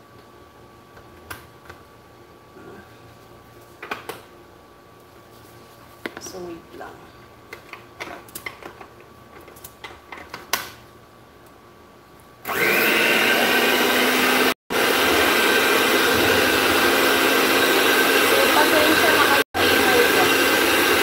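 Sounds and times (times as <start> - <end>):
hand mixer motor whirring: 12.4 - 21.0.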